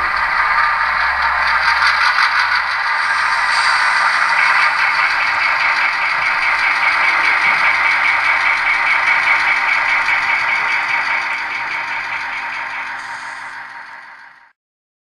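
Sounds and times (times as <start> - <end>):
model train rolling on track: 0.0 - 14.5.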